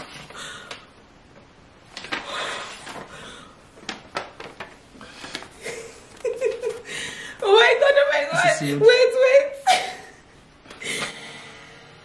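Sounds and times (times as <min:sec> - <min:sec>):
paper envelope rustling: 0:01.8 - 0:06.8.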